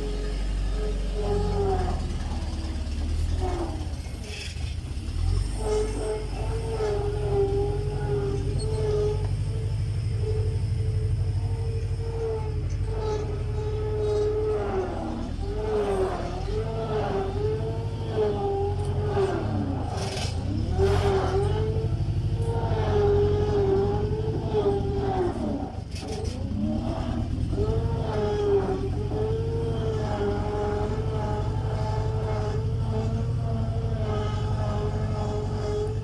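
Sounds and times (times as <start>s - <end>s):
loader engine rumbling with whine: 0.0s - 36.0s.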